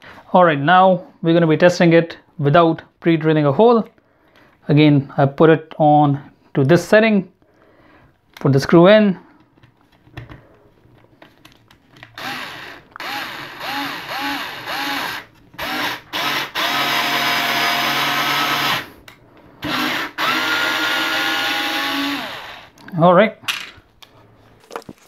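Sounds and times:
electric screwdriver driving screw: 12.2s - 18.9s, 19.6s - 22.7s.

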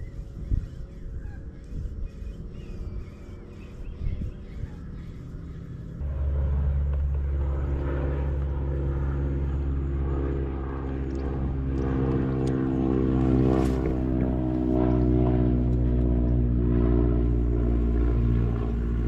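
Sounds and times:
engine humming: 5.0s - 19.0s.

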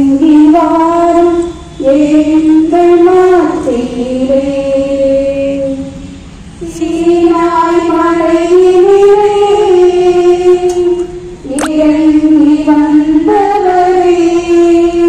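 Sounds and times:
voices singing a hymn: 0.0s - 15.0s
short sharp click: 11.5s - 11.8s.

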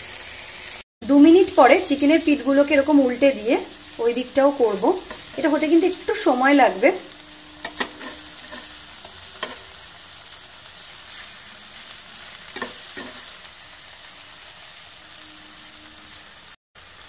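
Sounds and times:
chicken sizzling in hot oil: 0.0s - 17.0s
metal spatula scraping pan: 4.9s - 5.9s, 7.3s - 9.8s, 10.9s - 13.4s.

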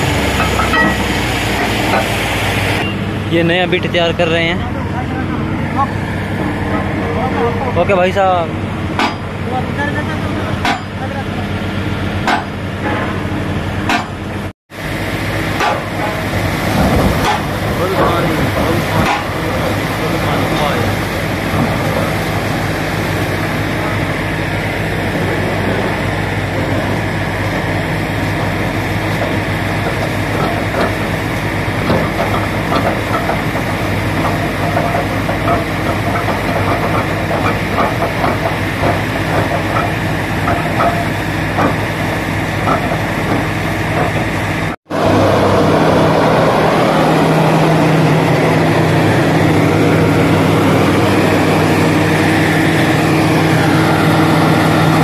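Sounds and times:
compressed air blasting water: 0.0s - 3.0s
compressor humming: 0.0s - 55.0s
drilling rig engine hum: 0.0s - 55.0s.

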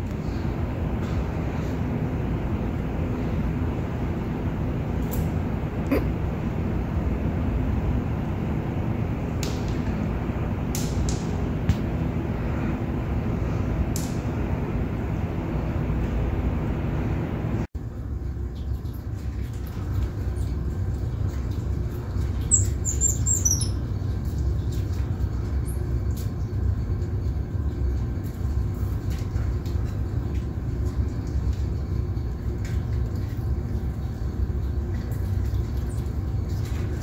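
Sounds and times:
steady low rumble: 0.0s - 37.0s
monkeys chirping: 22.5s - 23.8s.

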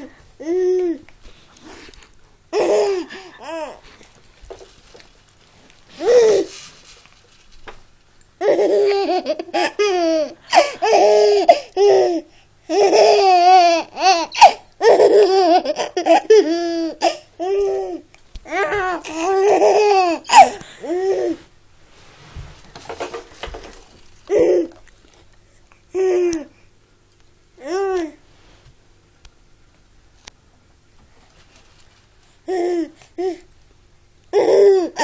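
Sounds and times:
baby giggling and laughing: 2.5s - 3.8s, 8.4s - 21.4s, 34.3s - 35.0s.

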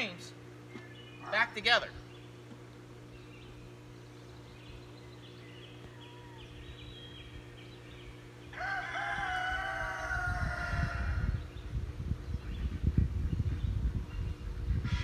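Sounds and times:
small birds chirping: 0.0s - 10.1s, 11.2s - 14.9s
rooster crowing: 5.8s - 6.6s, 8.5s - 11.4s.

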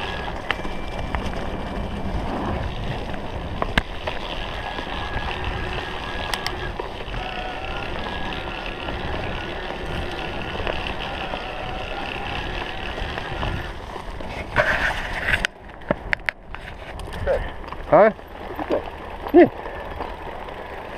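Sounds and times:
wind rush: 0.0s - 4.0s
bike rattling: 0.0s - 20.9s
bike tyre noise: 0.0s - 20.9s
loud scrape: 13.3s - 15.5s.

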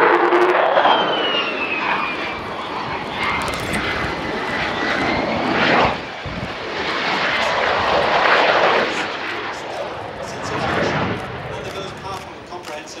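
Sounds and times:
high whine falling in pitch: 0.0s - 9.0s
jet engine roar: 0.0s - 13.0s.

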